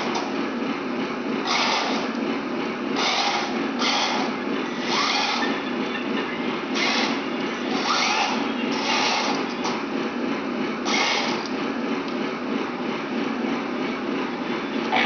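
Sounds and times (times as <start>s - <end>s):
steady hum: 0.0s - 15.0s
toy tank gear motors whining: 1.4s - 2.2s, 3.0s - 5.8s, 6.7s - 9.8s, 10.8s - 11.6s.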